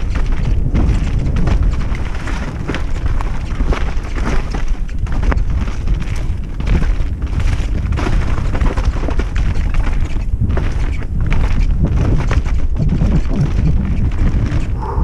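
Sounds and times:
bike rattling down dirt trail: 0:00.0 - 0:15.0
wind buffeting microphone: 0:00.0 - 0:15.0.

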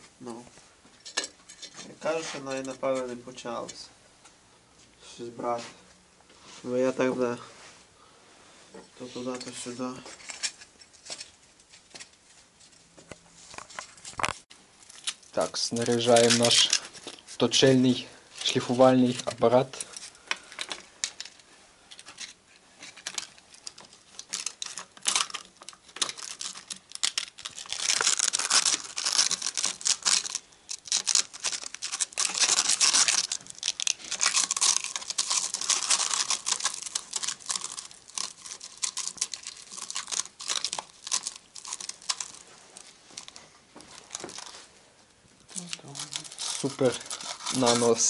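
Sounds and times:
sandpaper rustling and crackling: 0:15.4 - 0:19.3, 0:26.0 - 0:44.7, 0:45.9 - 0:48.0.

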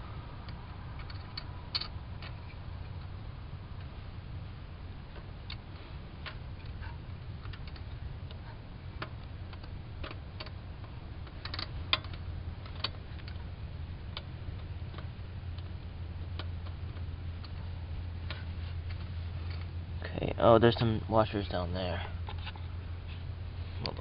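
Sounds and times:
steady low hum: 0:00.0 - 0:24.0
small metallic clicks and taps: 0:00.4 - 0:03.1, 0:06.2 - 0:13.5.

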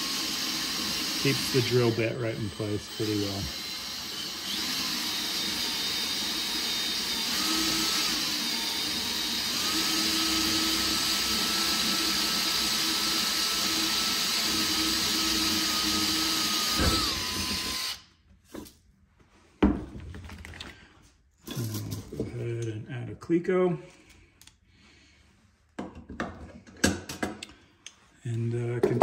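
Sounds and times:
drill motor whine: 0:00.0 - 0:18.0.

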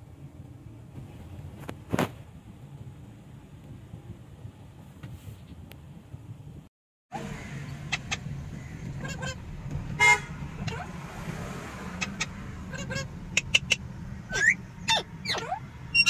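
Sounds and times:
car engine and road hum: 0:00.0 - 0:16.0
parakeets squawking and whistling: 0:07.4 - 0:09.4, 0:11.9 - 0:16.0.

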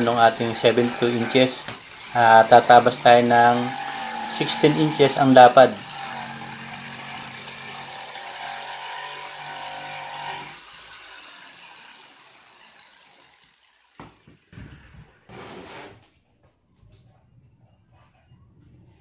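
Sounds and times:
saw knocking on wood: 0:00.0 - 0:10.5
jigsaw cutting plywood: 0:00.0 - 0:15.8.

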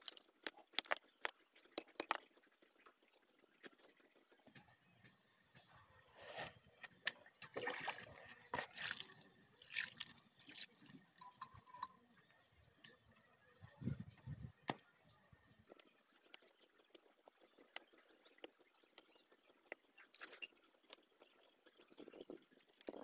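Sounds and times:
sharp clicks and knocks: 0:00.0 - 0:02.5.

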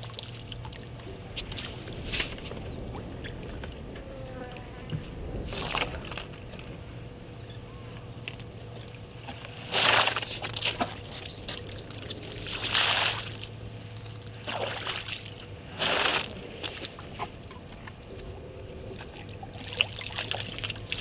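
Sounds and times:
elephant sloshing water: 0:08.8 - 0:17.5, 0:18.3 - 0:21.0.

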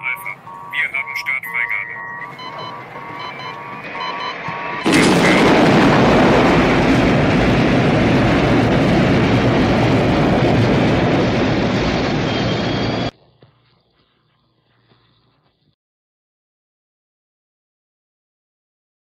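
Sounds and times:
rocket engine rushing: 0:02.3 - 0:13.1.

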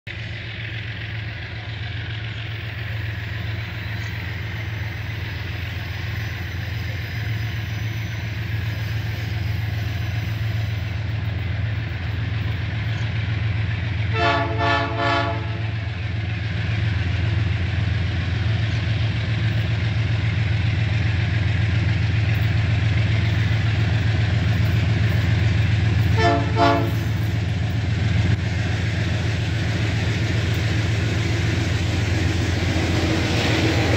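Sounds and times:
diesel locomotive engine drone: 0:00.0 - 0:33.9
train horn blasts: 0:14.1 - 0:15.8, 0:26.0 - 0:27.3.

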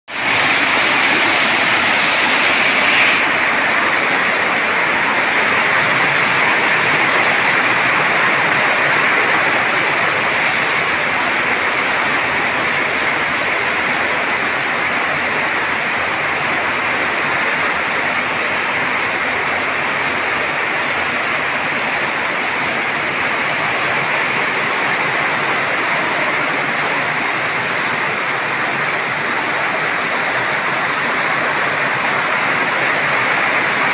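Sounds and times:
heavy rain: 0:00.1 - 0:33.9.

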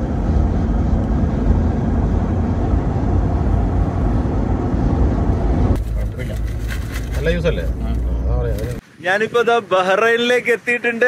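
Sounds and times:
car driving at highway speed: 0:00.0 - 0:08.8.

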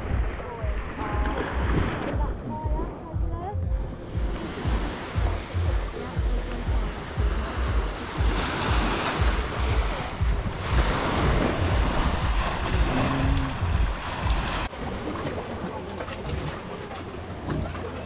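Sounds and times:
wind buffeting microphone: 0:00.0 - 0:14.7
small waves breaking on beach: 0:04.2 - 0:17.0.

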